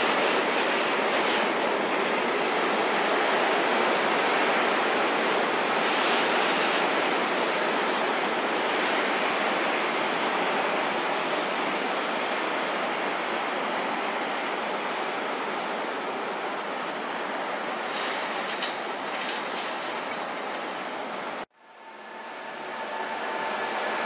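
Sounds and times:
freight train rolling: 0:00.0 - 0:24.0
thin high whine: 0:21.6 - 0:24.0.

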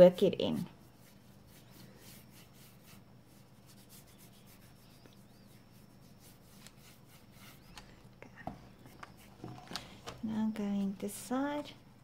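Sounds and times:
paintbrush scrubbing canvas: 0:00.2 - 0:07.8, 0:08.8 - 0:09.4.

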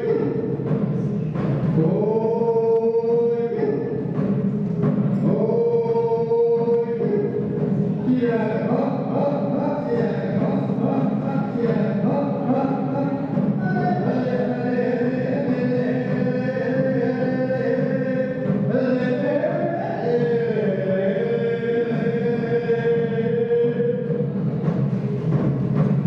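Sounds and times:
hand drum beating: 0:00.0 - 0:26.0
man chanting through microphone: 0:00.0 - 0:26.0.

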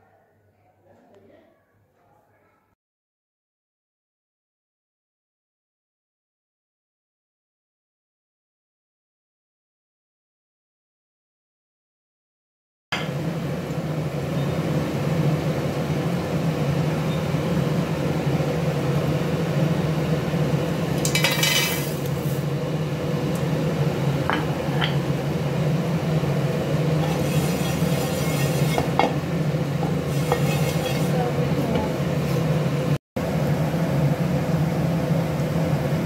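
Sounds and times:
steady low hum: 0:13.1 - 0:36.0.

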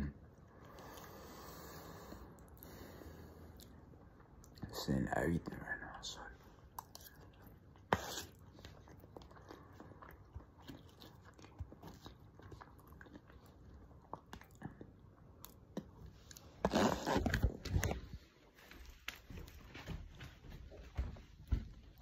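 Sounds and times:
chewing and biting: 0:06.6 - 0:18.2.

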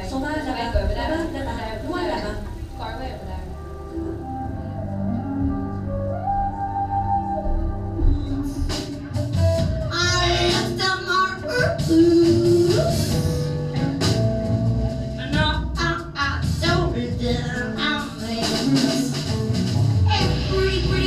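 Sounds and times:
electric bass: 0:00.0 - 0:21.0
person singing: 0:07.9 - 0:14.3, 0:15.2 - 0:19.5, 0:20.1 - 0:21.0
drum kit with cymbals: 0:08.0 - 0:21.0.

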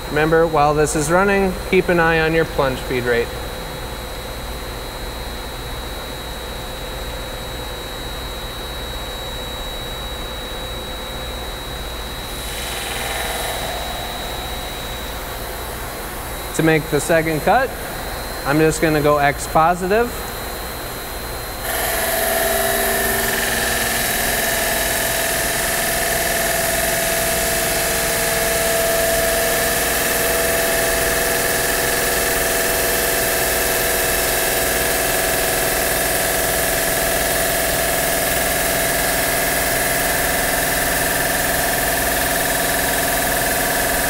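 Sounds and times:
saw cutting stone slab: 0:21.7 - 0:34.4.

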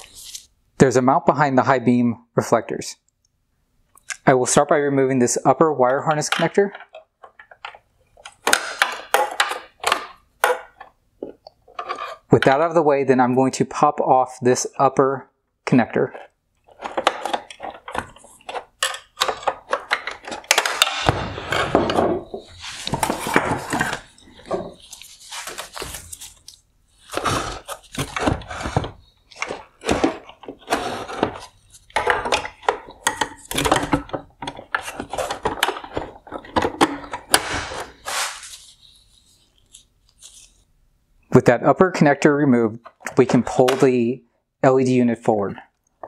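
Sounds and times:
plastic parts clicking and rattling: 0:06.2 - 0:12.3, 0:16.1 - 0:37.9.

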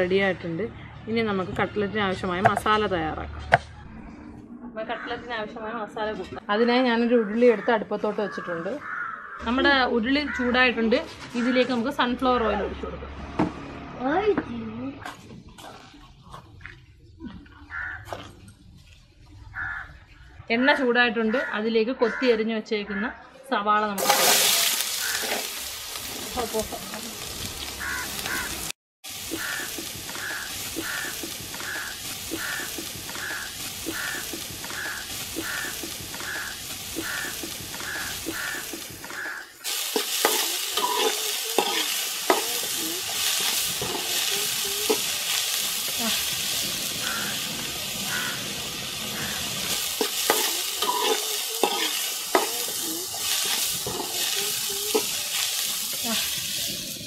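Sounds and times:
onions sizzling in oil: 0:24.0 - 0:57.0
spoon scraping a pan: 0:29.3 - 0:45.2, 0:49.2 - 0:56.0.

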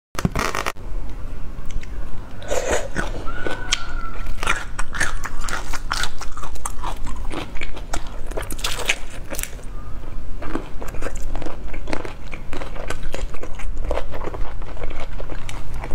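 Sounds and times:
prawn shells cracking: 0:03.6 - 0:09.7.

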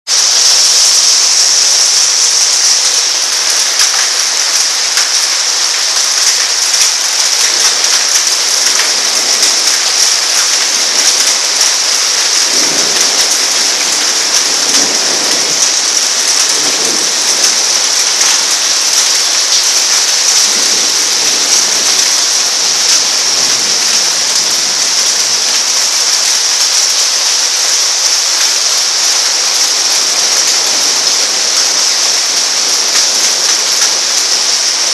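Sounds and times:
heavy rain pouring: 0:00.0 - 0:34.9
low thunder rumbles: 0:00.3 - 0:24.5.

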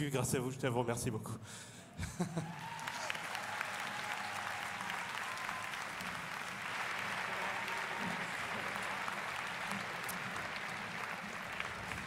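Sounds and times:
crowd applauding: 0:02.2 - 0:12.0.

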